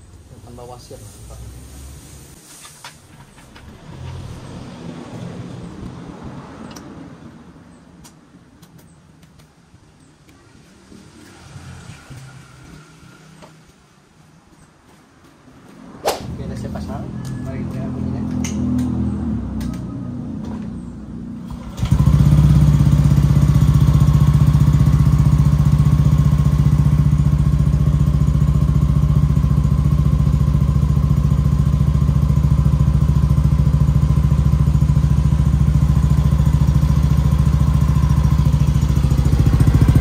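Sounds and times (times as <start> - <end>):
scooter engine idling: 20.8 - 40.0.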